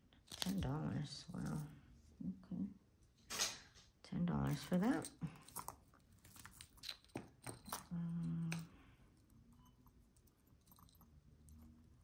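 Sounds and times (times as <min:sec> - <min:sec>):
jewelry clicking and rustling: 0:00.2 - 0:01.8, 0:04.5 - 0:12.0.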